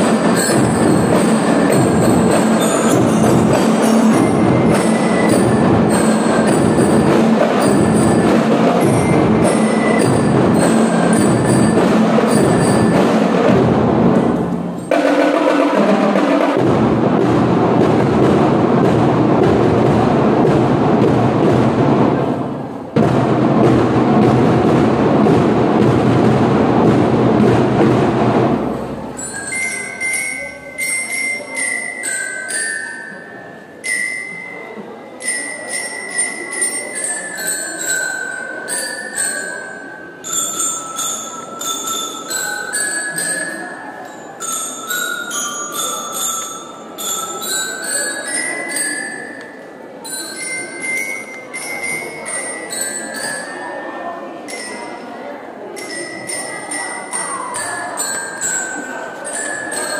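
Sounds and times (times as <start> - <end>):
bell lyre melody: 0.0 - 15.0, 28.6 - 55.1, 55.8 - 59.9
marching band with drums: 0.0 - 30.2.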